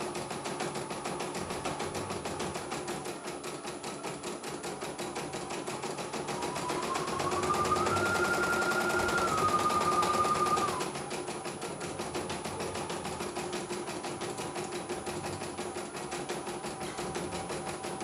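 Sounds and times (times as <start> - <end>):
machine motor whine: 6.2 - 11.0.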